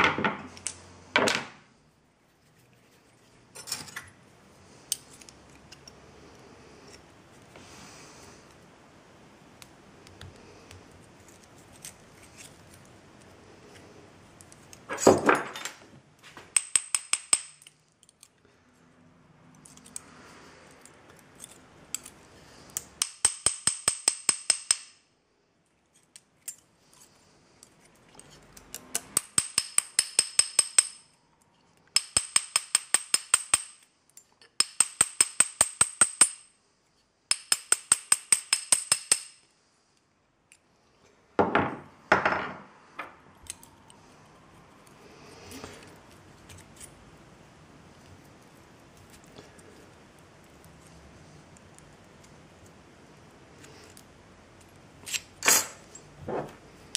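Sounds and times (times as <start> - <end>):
small hammer tapping on steel: 29.0 - 31.0, 34.6 - 36.4, 37.3 - 39.4.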